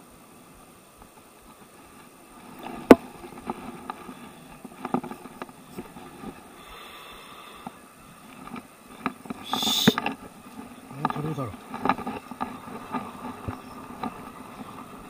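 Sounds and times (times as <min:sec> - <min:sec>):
faint steady hiss: 0:00.0 - 0:15.0
small clicks and knocks: 0:01.0 - 0:06.4, 0:07.6 - 0:14.8
microphone handling noise: 0:09.0 - 0:10.2.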